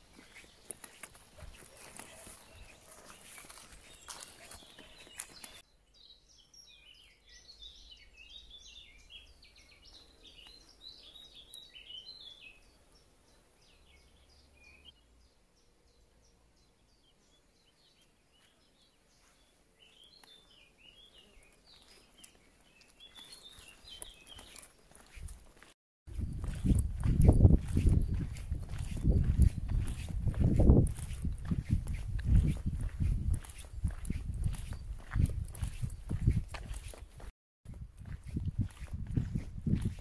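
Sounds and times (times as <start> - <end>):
footsteps on grassy path: 0.0 - 5.6, 18.3 - 40.0
birds chirping and twittering: 0.0 - 37.3, 38.0 - 40.0.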